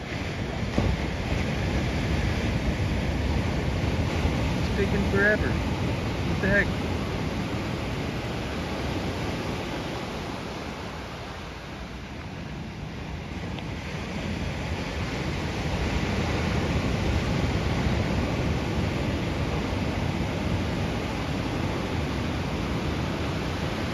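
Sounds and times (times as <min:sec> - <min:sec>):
ocean surf washing ashore: 0:00.0 - 0:23.9.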